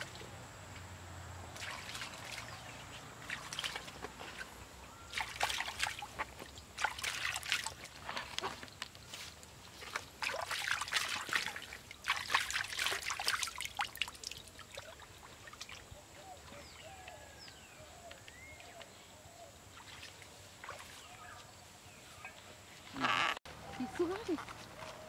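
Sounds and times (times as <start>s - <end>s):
water splashing in a stream: 0.0s - 0.4s, 1.4s - 17.2s, 19.6s - 21.5s.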